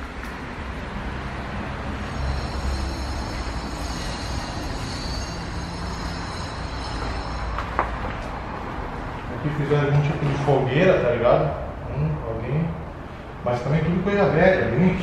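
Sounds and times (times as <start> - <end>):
heavy vehicle rumbling past: 0.0 - 15.0
faint high squeal: 1.9 - 8.1.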